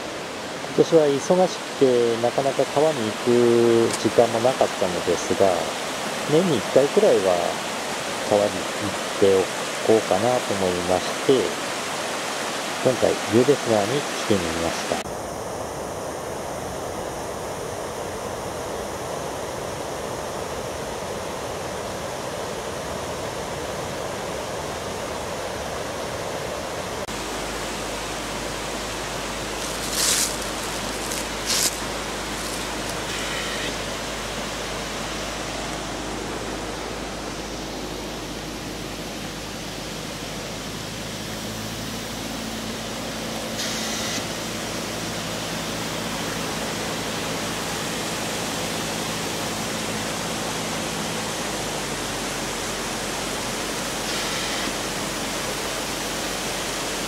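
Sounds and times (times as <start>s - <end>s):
stream rushing over rocks: 0.0s - 15.0s, 27.0s - 57.0s.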